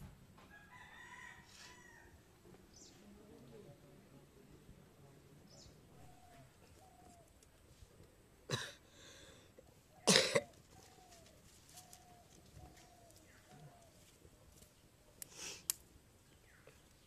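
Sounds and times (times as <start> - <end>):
person coughing: 8.5 - 8.8, 10.1 - 10.5.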